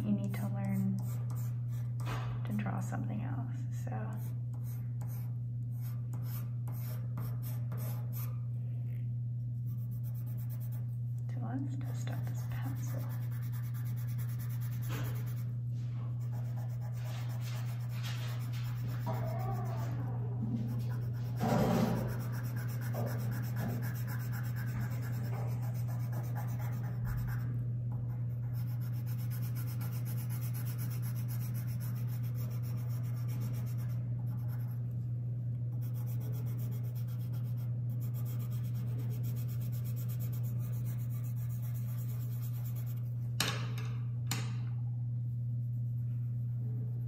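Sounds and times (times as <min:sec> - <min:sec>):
steady low hum: 0:00.0 - 0:47.0
pencil scratching on paper: 0:04.2 - 0:08.3, 0:12.0 - 0:15.4, 0:16.2 - 0:20.0, 0:20.6 - 0:27.5, 0:28.1 - 0:34.8, 0:35.8 - 0:43.0.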